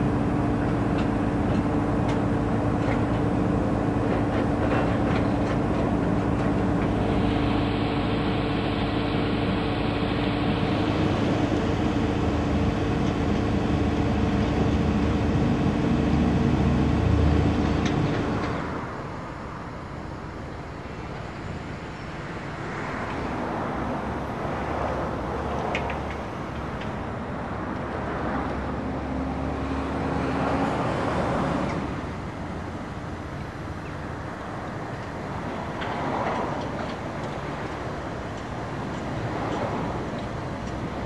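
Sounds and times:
steady whine: 0:00.0 - 0:24.6
excavator diesel engines rumbling: 0:00.0 - 0:41.0.

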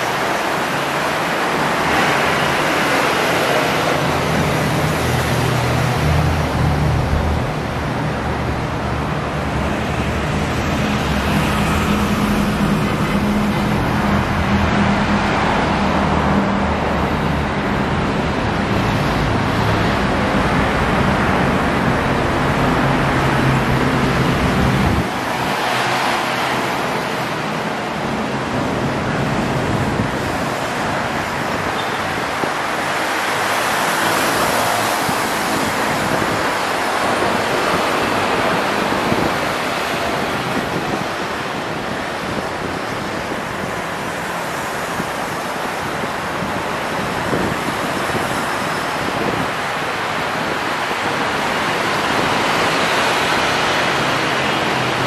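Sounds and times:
steady rushing noise: 0:00.0 - 0:55.0.

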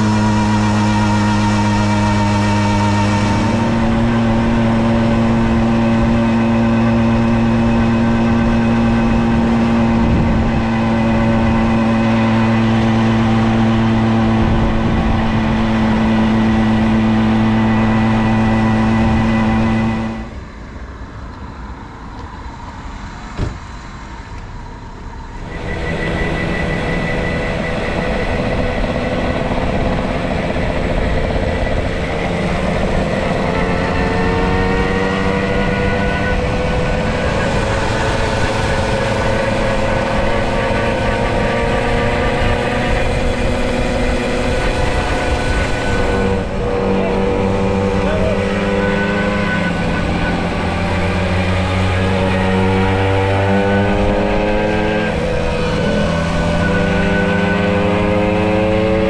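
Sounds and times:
moped engine running: 0:25.6 - 0:59.0.

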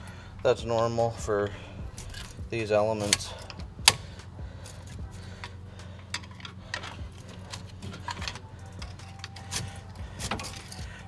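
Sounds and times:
steady low hum: 0:00.0 - 0:11.0
metallic clicks and clinks: 0:03.0 - 0:10.9.

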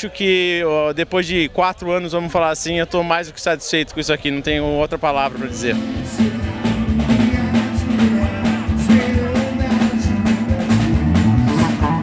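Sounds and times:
drum kit beat: 0:05.3 - 0:12.0
acoustic guitar: 0:05.5 - 0:12.0
man singing: 0:05.5 - 0:12.0.

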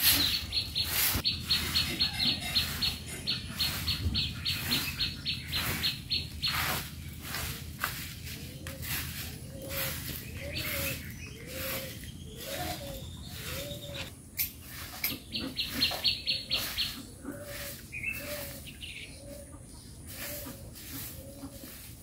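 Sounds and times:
bird chirping: 0:00.0 - 0:21.8
broom sweeping earth: 0:00.0 - 0:22.0.

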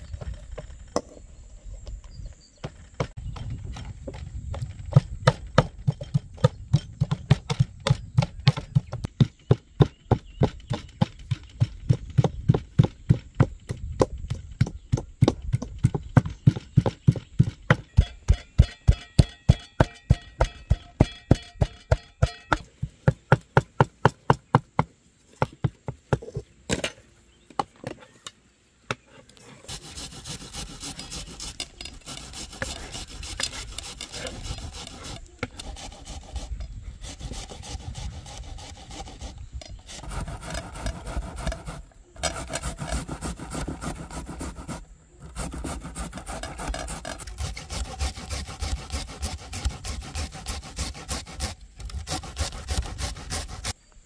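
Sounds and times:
box grater scraping: 0:29.7 - 0:53.8.

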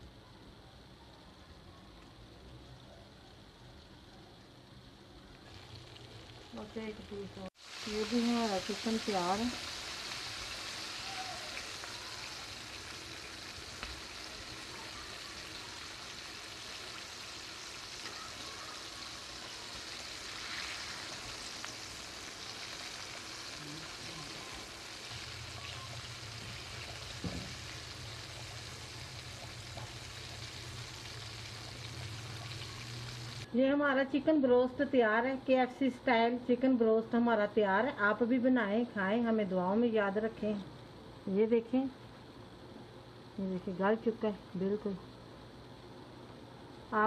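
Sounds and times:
chicken deep-frying in hot oil: 0:00.0 - 0:33.5
low steady hum: 0:00.0 - 0:47.0.

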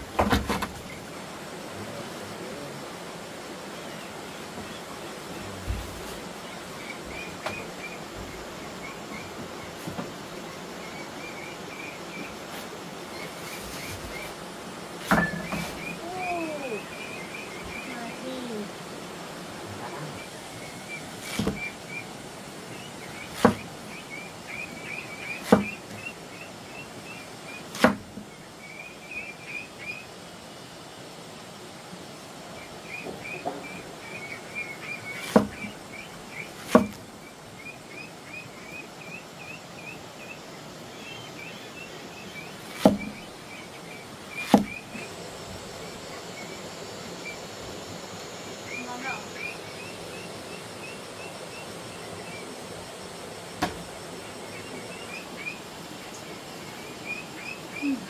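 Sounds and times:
sharp loud knocks: 0:00.1 - 0:00.8, 0:23.4 - 0:23.7, 0:35.3 - 0:35.7, 0:36.7 - 0:37.0, 0:42.8 - 0:43.1.

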